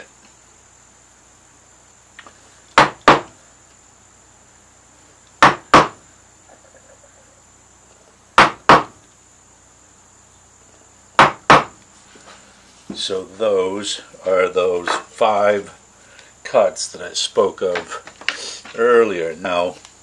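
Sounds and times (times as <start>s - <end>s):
mallet striking chisel into wood: 2.8s - 3.3s, 5.4s - 6.0s, 8.4s - 9.0s, 11.2s - 11.8s.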